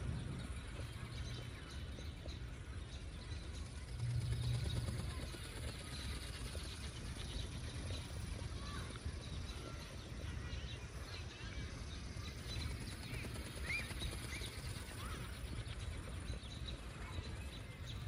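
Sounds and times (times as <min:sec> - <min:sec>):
low rumble: 0:00.0 - 0:01.8.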